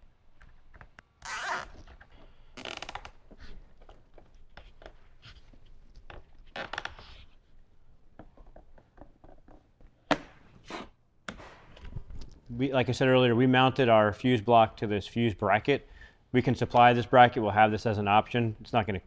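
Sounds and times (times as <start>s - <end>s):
zip ties ratcheting: 1.2s - 1.8s.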